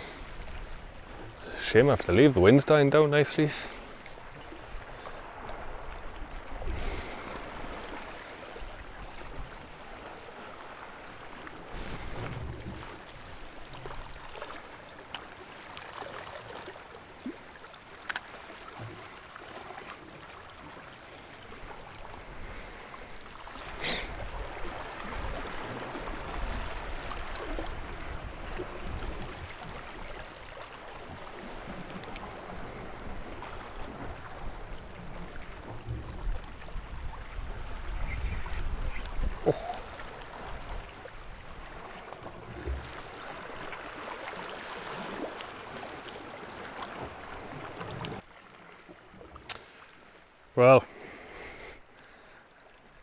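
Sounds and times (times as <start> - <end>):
seawater lapping against rocks: 0.0 - 53.0
wind on microphone: 32.5 - 41.8.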